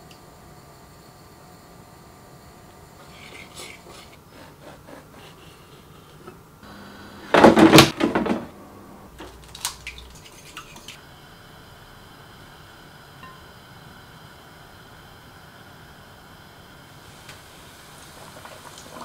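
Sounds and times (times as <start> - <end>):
whisk scraping in a bowl: 3.0 - 6.3, 10.2 - 11.0.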